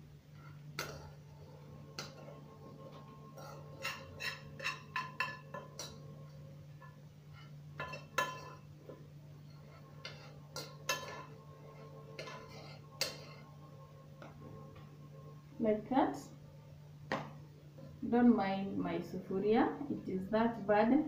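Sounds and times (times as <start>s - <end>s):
metal spoon scraping a metal pot: 3.0s - 6.1s, 6.8s - 8.6s, 9.5s - 13.5s.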